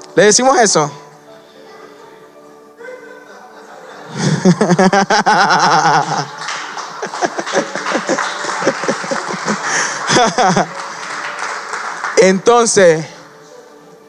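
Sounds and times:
crowd laughing: 2.8 - 12.2
scattered chuckling: 2.9 - 10.8.

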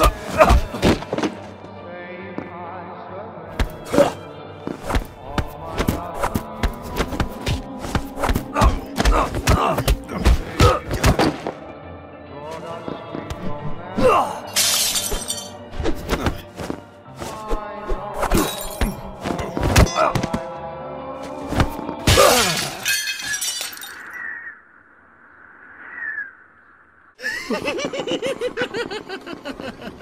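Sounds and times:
film score music: 0.0 - 22.6.

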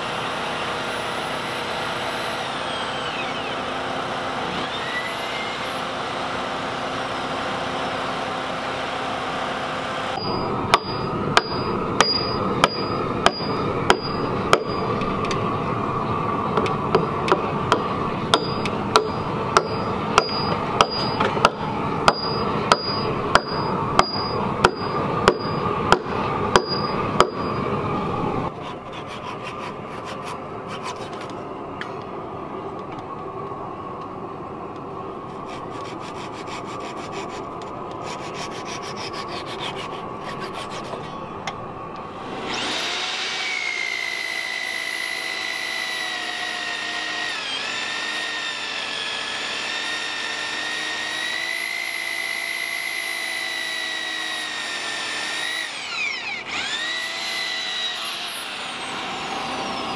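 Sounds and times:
power drill whining: 0.6 - 6.4, 42.1 - 59.9
hammer striking wood: 10.2 - 14.8, 16.6 - 27.6
chisel scraping timber: 28.6 - 31.4, 35.4 - 41.2.

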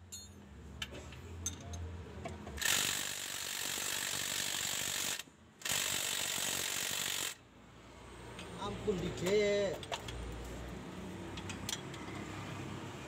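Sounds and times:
ratchet wrench clicking: 2.6 - 7.4.

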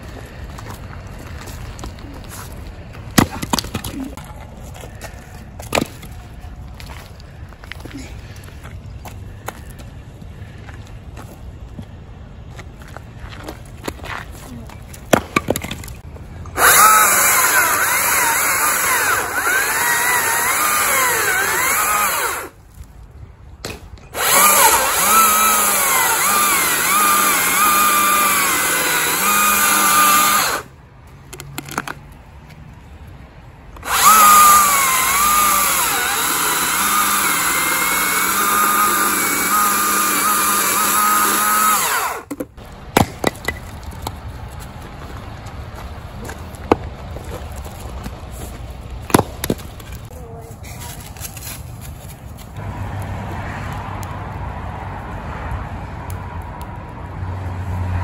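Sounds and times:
chainsaw cutting logs: 16.5 - 22.6, 24.1 - 30.7, 33.8 - 43.9, 49.1 - 50.1.

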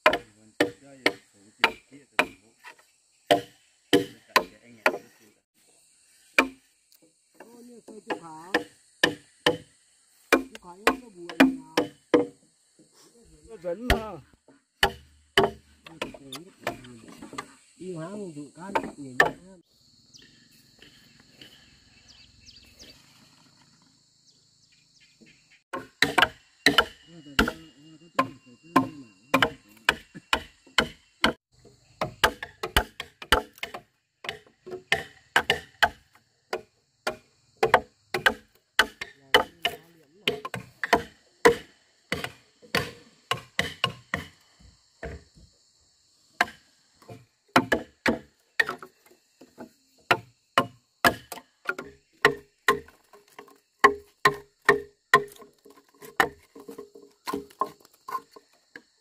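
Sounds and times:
wooden knocks on timber: 10.3 - 12.4, 40.3 - 45.5, 46.4 - 58.8.

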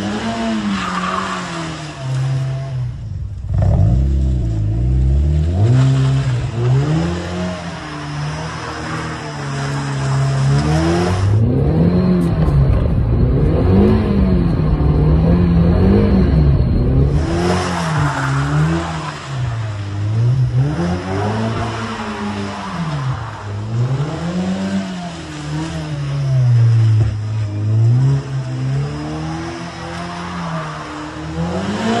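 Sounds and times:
sports car engine revving: 2.1 - 22.5.

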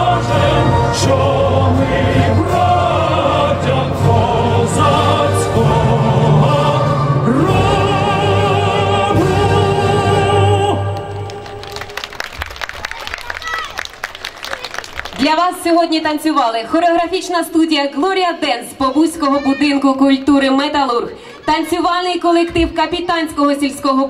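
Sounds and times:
choir singing: 0.0 - 11.5
steady musical accompaniment: 0.0 - 12.2.

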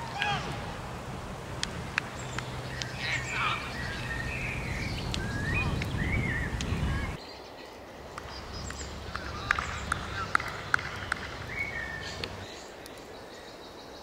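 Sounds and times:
steady low rumble: 0.0 - 7.2
chirping bird calls: 2.0 - 7.6, 8.2 - 14.0.

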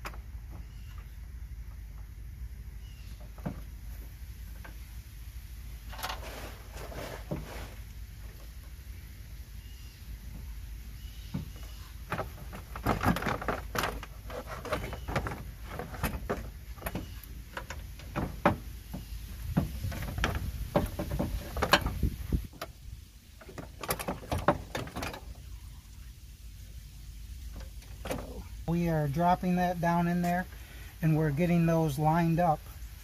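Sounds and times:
radiator knocks and rattles: 11.3 - 22.7, 23.4 - 25.4.

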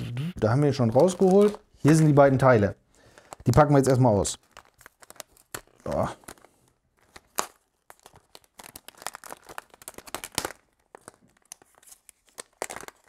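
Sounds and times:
packaging crinkling and tearing: 0.7 - 13.0.

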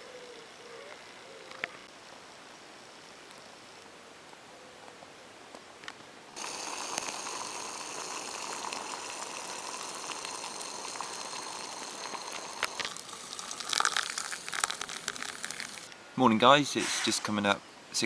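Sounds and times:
uneven crackle with splashy clicks: 6.4 - 15.9
water boiling in pot: 6.4 - 15.9.

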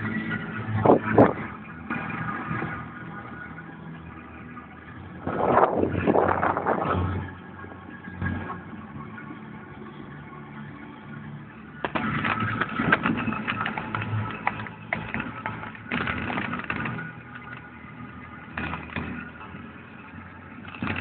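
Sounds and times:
engine and road hum: 0.0 - 21.0
rattling and clicking in car cabin: 11.8 - 17.8, 18.5 - 19.6.

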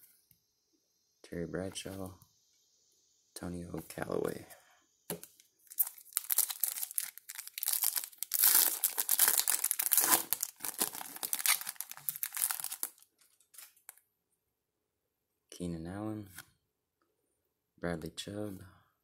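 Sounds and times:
foil wrapper crackling: 5.6 - 13.9.

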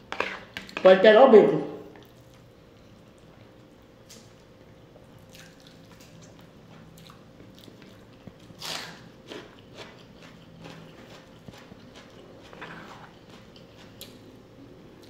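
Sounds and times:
faint steady hum: 0.0 - 15.0
wet chewing: 5.2 - 14.2
crunchy bite into onion: 8.5 - 9.9.

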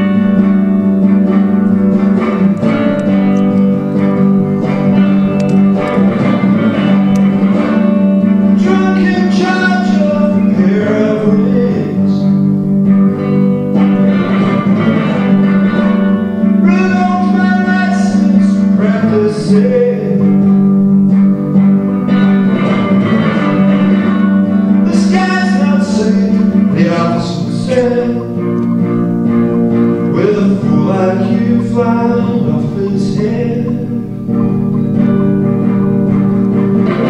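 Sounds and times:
electric guitar chords: 0.0 - 37.0
man singing: 8.4 - 12.5, 16.5 - 20.7, 24.8 - 28.5, 30.0 - 34.4.

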